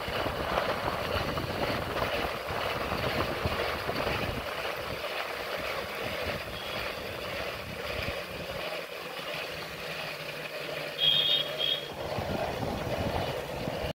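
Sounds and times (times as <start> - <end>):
wind rushing on microphone: 0.0 - 5.0, 12.0 - 13.9
motorcycle engine drone: 5.7 - 13.9
motorcycle horn beeps: 6.6 - 6.8, 11.0 - 11.9.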